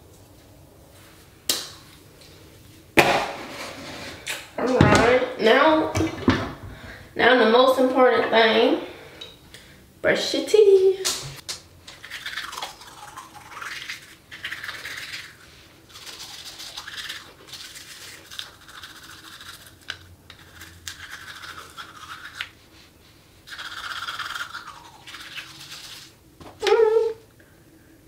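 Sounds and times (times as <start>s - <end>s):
toothbrush scrubbing teeth: 11.9s - 22.7s, 23.5s - 26.2s.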